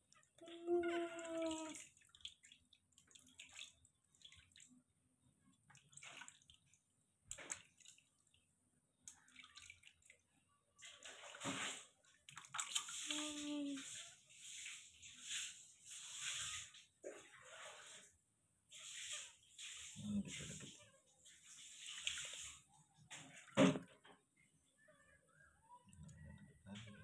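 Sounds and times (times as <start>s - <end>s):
water dripping: 0.0s - 15.4s
water splashing and trickling: 0.0s - 24.4s.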